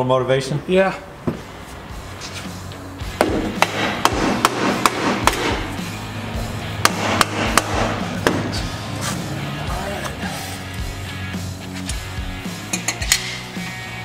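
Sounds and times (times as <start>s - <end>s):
hammer striking metal: 3.2s - 5.8s, 6.8s - 8.6s.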